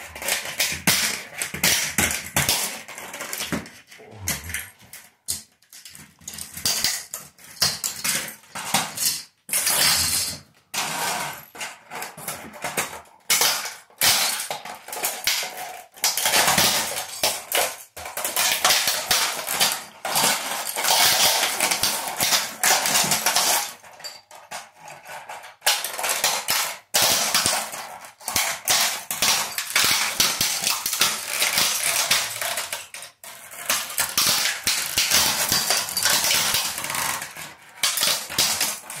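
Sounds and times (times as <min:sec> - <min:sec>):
plastic shards clattering on tile: 0:05.3 - 0:39.0
plastic toy cracking and crunching: 0:10.8 - 0:39.0.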